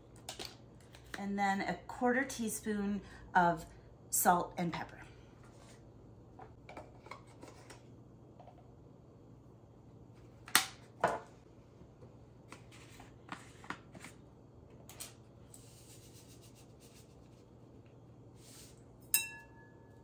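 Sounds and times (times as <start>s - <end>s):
sharp ringing clink: 19.0s - 20.0s.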